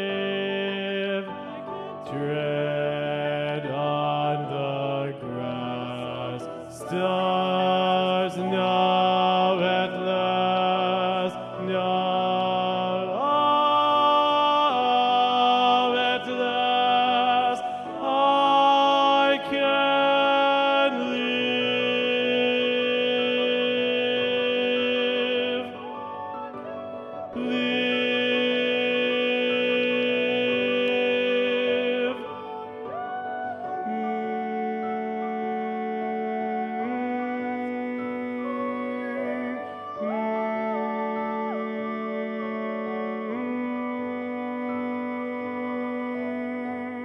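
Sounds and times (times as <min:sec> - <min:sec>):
mixed choir singing held chords: 0:00.0 - 0:47.0.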